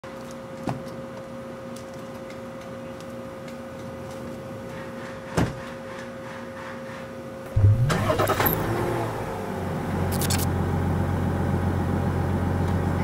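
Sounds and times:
steady hum: 7.5s - 12.6s.

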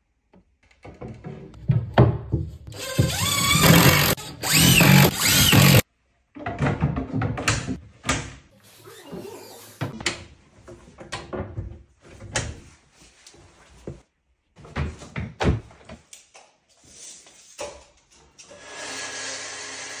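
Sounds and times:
knocks and thuds of cabinet panels: 0.9s - 3.7s, 6.4s - 8.4s, 14.6s - 16.0s
table saw whirring: 2.8s - 5.8s.

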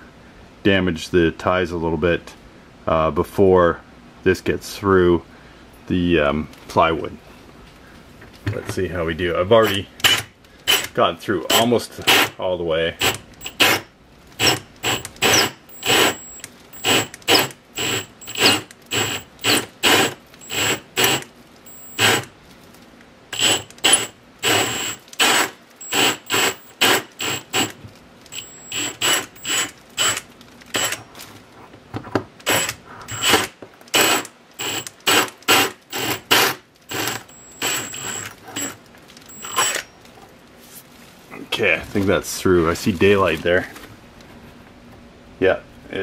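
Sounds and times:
drill in short bursts: 10.0s - 10.9s, 11.5s - 12.4s, 13.0s - 22.3s, 23.3s - 31.0s, 32.4s - 39.8s
hole saw cutting wood: 13.0s - 13.8s, 14.4s - 22.3s, 23.4s - 30.2s, 32.5s - 39.8s.

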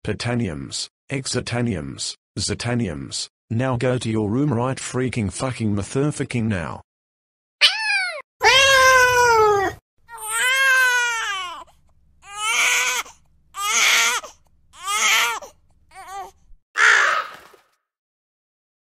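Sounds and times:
person wailing and sobbing: 7.6s - 10.7s.

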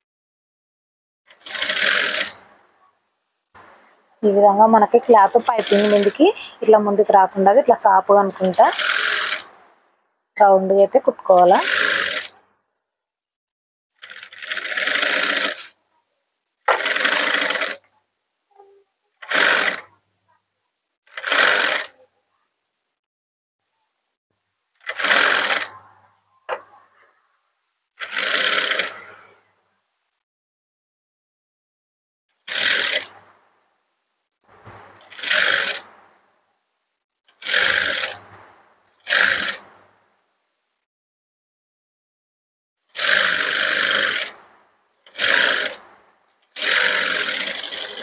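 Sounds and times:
sewing machine stitching: 1.3s - 2.9s, 4.8s - 6.6s, 7.5s - 9.7s, 10.4s - 12.4s, 14.0s - 15.8s, 16.6s - 17.9s, 18.5s - 20.0s, 21.1s - 22.1s, 24.8s - 25.9s, 28.0s - 29.1s, 32.4s - 33.3s, 34.5s - 36.2s, 37.3s - 39.8s, 42.9s - 48.0s.

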